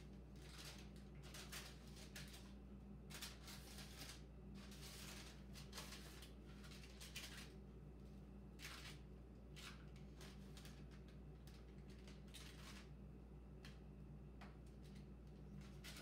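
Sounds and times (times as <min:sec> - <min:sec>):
steady low hum: 0:00.0 - 0:16.0
spatula scraping batter on paper: 0:03.1 - 0:07.6.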